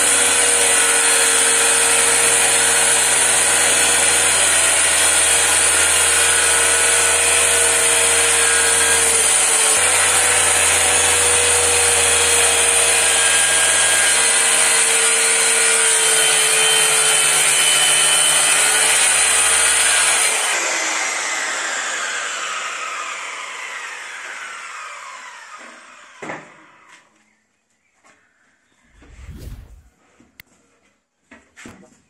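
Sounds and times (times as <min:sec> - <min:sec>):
circular saw cutting: 0:00.0 - 0:25.6.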